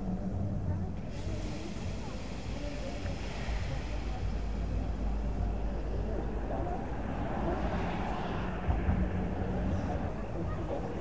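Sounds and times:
steam locomotive hissing: 0:01.0 - 0:08.6.

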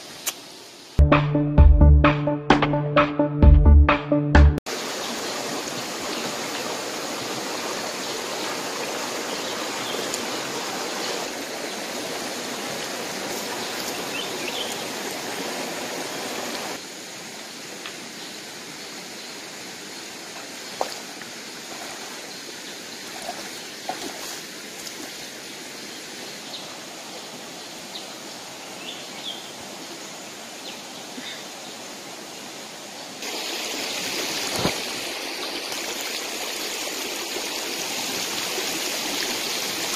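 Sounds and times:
stream flowing over rocks: 0:04.7 - 0:28.8, 0:29.4 - 0:39.9
stones knocking in streambed: 0:34.4 - 0:35.0.

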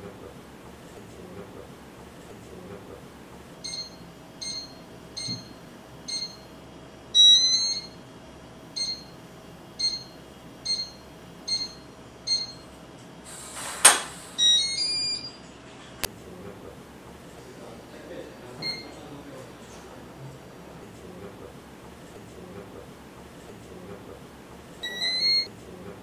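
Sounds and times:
keypad beeps: 0:03.6 - 0:06.5, 0:07.2 - 0:08.0, 0:08.8 - 0:09.1, 0:09.8 - 0:12.6, 0:14.4 - 0:15.4, 0:18.6 - 0:18.9, 0:24.8 - 0:25.5.

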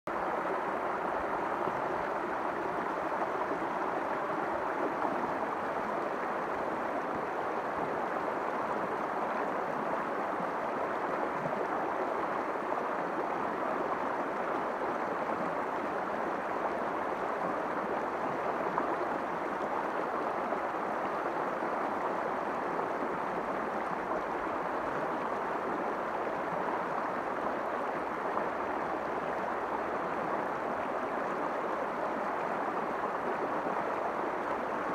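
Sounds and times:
river rushing over rocks: 0:00.1 - 0:34.9.

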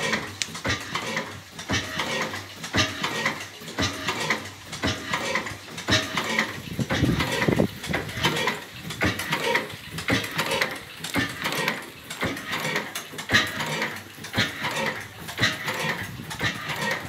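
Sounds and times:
stationary engine clacking: 0:00.0 - 0:17.0.

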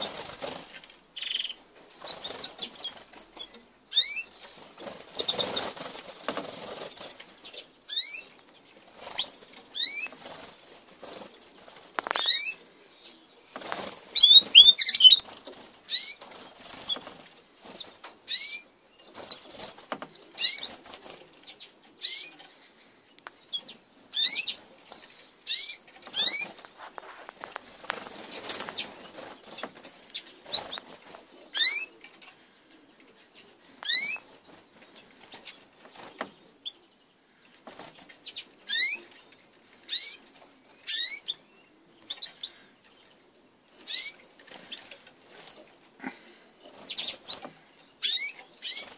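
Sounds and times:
wings fluttering: 0:00.0 - 0:12.7, 0:13.4 - 0:18.5, 0:19.1 - 0:21.5, 0:23.5 - 0:32.3, 0:33.8 - 0:36.4, 0:37.6 - 0:41.3, 0:43.8 - 0:48.9
birds landing on wooden perches: 0:04.5 - 0:07.4, 0:13.5 - 0:18.2, 0:25.8 - 0:31.3, 0:34.1 - 0:36.4, 0:37.6 - 0:38.1.

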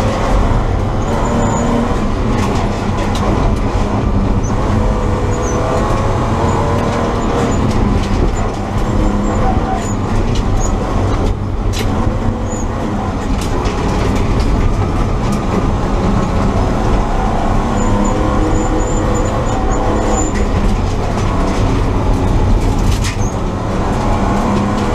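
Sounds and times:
car engine running: 0:00.0 - 0:24.9
road and tyre noise: 0:00.0 - 0:24.9.

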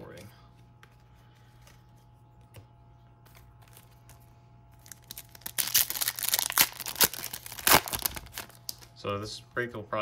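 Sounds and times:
foil wrapper crinkling: 0:03.6 - 0:08.9.

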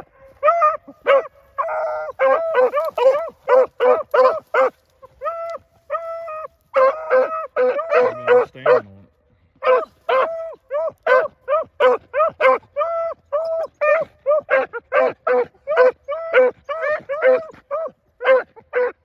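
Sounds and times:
dogs bawling: 0:00.0 - 0:08.9
deep-voiced dog barking: 0:00.0 - 0:19.0
hunting dogs barking: 0:00.0 - 0:19.0.

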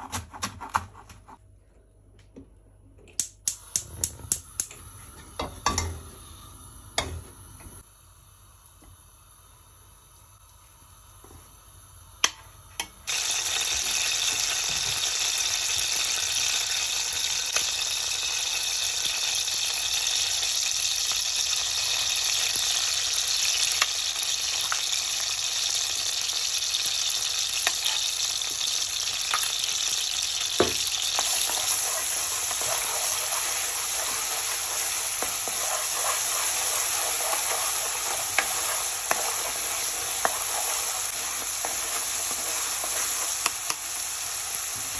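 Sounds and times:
paste sizzling in hot oil: 0:13.0 - 0:44.9
spoon scraping pan: 0:31.2 - 0:43.6.

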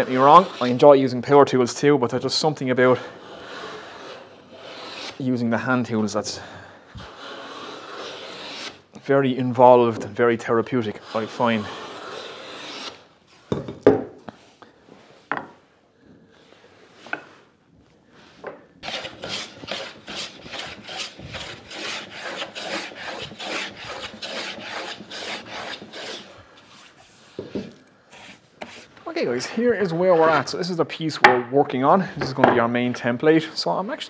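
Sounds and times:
hand plane cutting wood: 0:00.0 - 0:00.9, 0:03.0 - 0:05.2, 0:07.0 - 0:08.8, 0:11.0 - 0:13.0, 0:18.8 - 0:26.9, 0:27.5 - 0:28.9.

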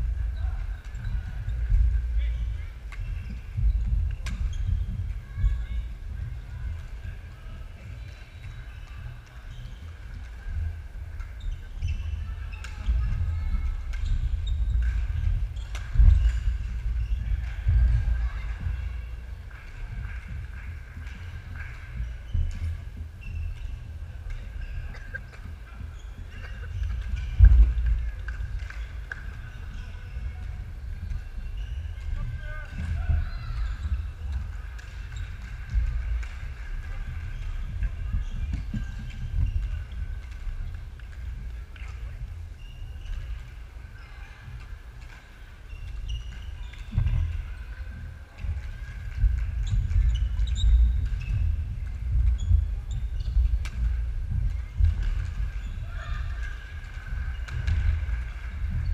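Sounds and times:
shoes squeaking: 0:21.2 - 0:58.9.

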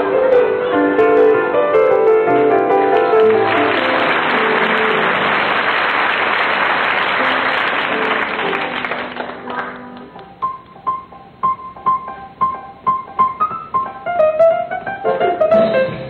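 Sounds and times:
piano playing: 0:00.0 - 0:16.0
audience applause: 0:02.7 - 0:10.3.

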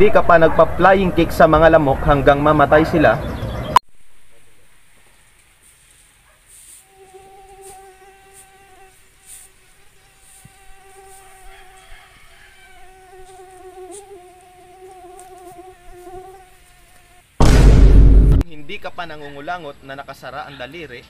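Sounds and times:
mosquito buzzing: 0:06.7 - 0:17.4
sudden loud burst: 0:17.4 - 0:18.5.

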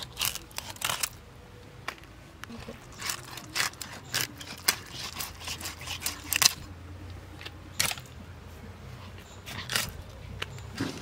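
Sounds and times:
blade cutting fish: 0:03.0 - 0:06.6.

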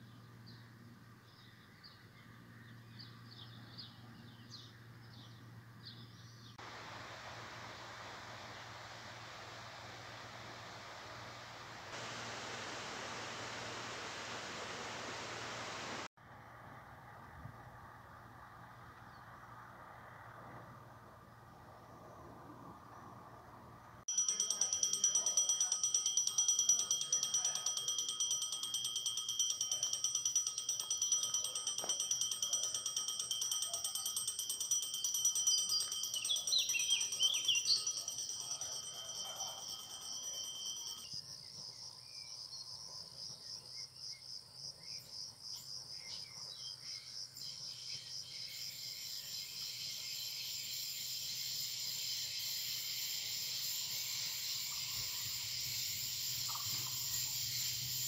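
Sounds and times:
crickets chirping: 0:06.6 - 0:16.1, 0:24.0 - 0:58.0.

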